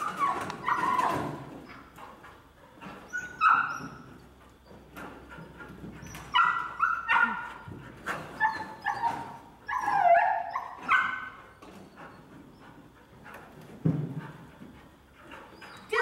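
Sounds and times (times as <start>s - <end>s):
dog barking and yipping: 0.0s - 1.3s, 3.1s - 4.0s, 6.0s - 7.6s, 8.2s - 11.6s.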